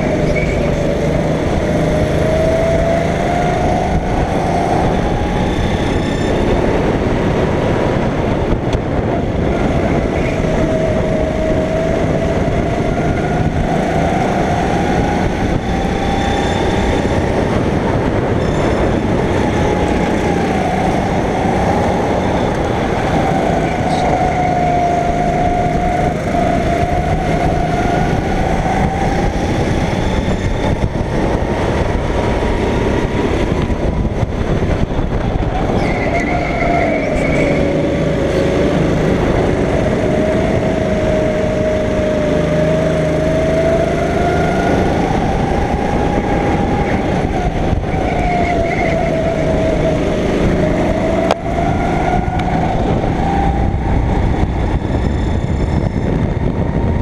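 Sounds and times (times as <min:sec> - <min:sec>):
go-kart engine revving: 0:00.0 - 0:57.0
steady rushing noise: 0:00.0 - 0:57.0.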